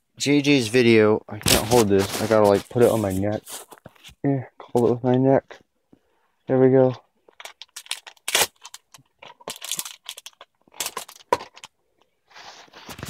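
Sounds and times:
foil wrapper crinkling: 7.4 - 11.7.

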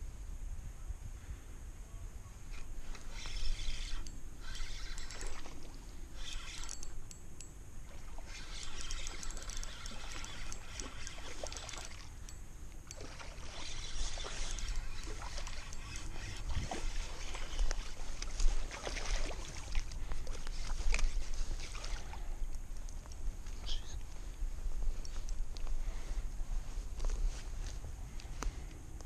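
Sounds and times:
fishing reel clicking: 2.5 - 18.5.

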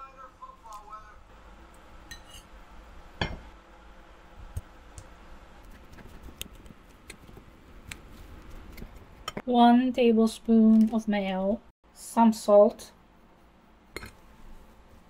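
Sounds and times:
fork clinking on ceramic plate: 2.1 - 2.5.

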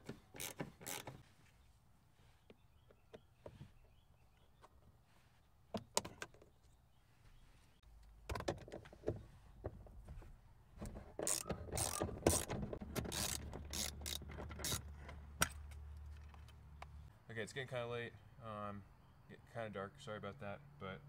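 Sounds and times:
hand ratchet clicking: 0.0 - 1.2, 11.2 - 14.9.

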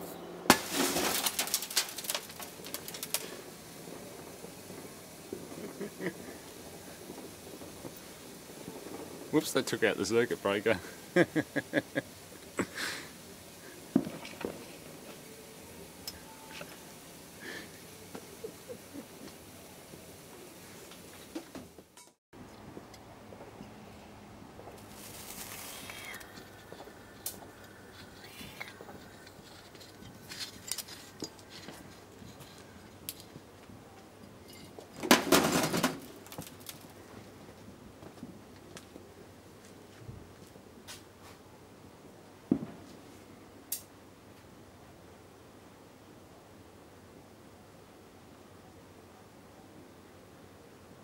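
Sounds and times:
fire crackling and popping: 0.5 - 22.1, 24.6 - 41.2, 42.5 - 44.0
person speaking: 25.0 - 29.4.

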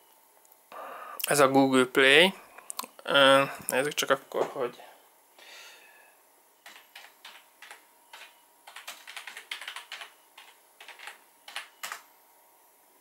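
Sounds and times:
computer keyboard typing: 6.6 - 12.1.

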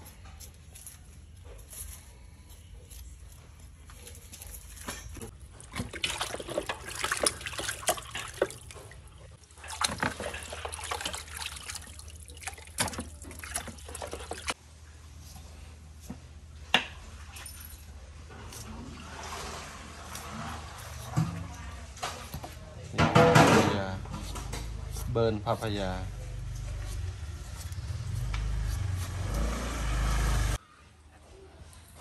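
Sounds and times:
water splashing in a basin: 5.4 - 14.6.

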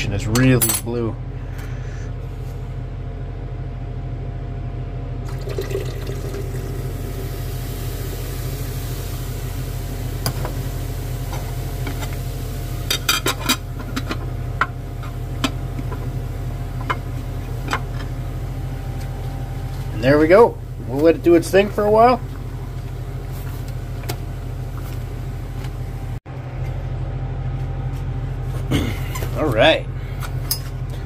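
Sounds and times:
low hum: 0.0 - 31.0
liquid pouring into glass: 5.2 - 7.2.

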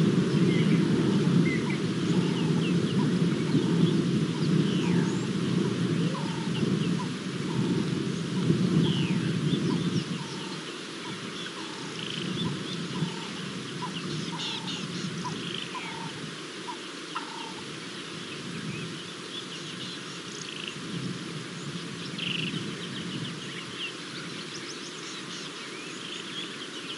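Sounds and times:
bird repeating low notes: 0.0 - 17.7
birds chirping: 0.0 - 26.9.

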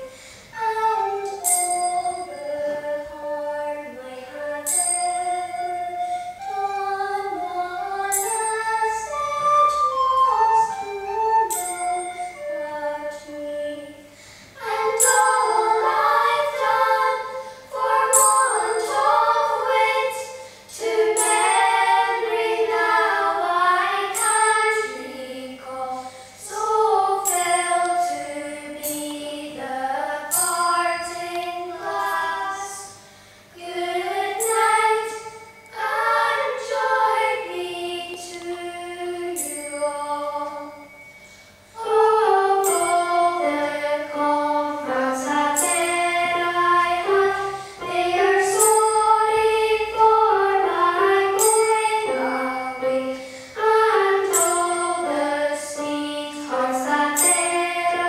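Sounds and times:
girls singing together: 0.0 - 41.0, 41.8 - 58.0
bell-like metal strike: 1.3 - 2.8, 4.6 - 6.2, 11.5 - 12.4, 14.6 - 20.4, 39.4 - 50.1.

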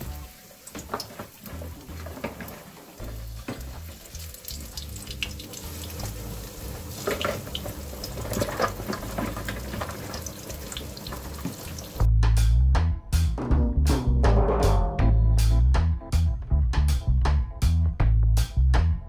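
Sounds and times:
fish frying in hot oil: 0.0 - 12.1.

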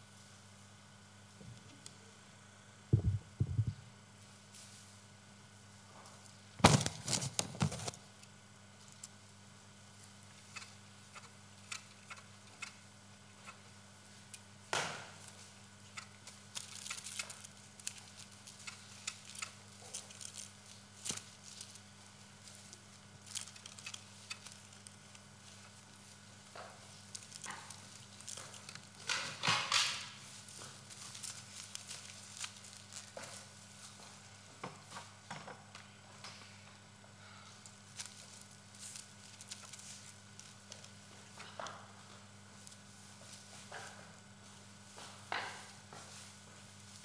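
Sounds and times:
dull thumps: 2.9 - 3.8
knocks and clatter: 3.0 - 3.8.

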